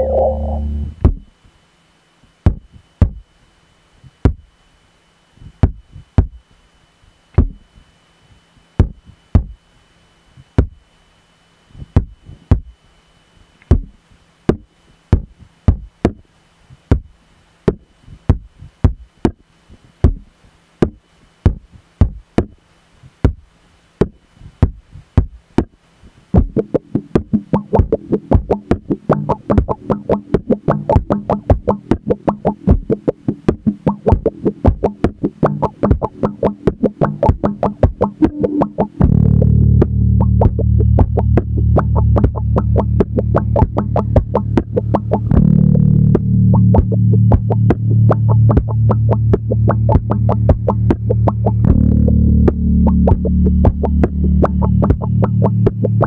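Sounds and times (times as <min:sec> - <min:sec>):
low pitched tone: 0:00.0 - 0:01.2, 0:27.5 - 0:56.0
faint electronic hum: 0:00.0 - 0:56.0
electric instrument percussive knocks: 0:20.0 - 0:22.6, 0:26.4 - 0:56.0.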